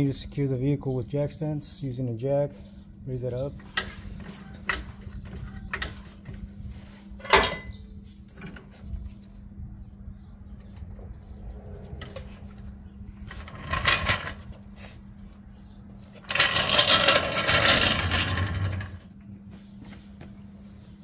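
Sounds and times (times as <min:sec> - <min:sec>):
floor jack rattling on concrete: 0:13.3 - 0:14.5, 0:16.2 - 0:19.1
metallic clatter: 0:16.2 - 0:19.1.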